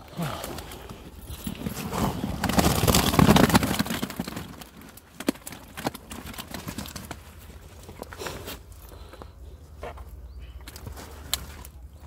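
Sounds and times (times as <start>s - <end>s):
fish flapping and slapping: 1.7s - 7.7s.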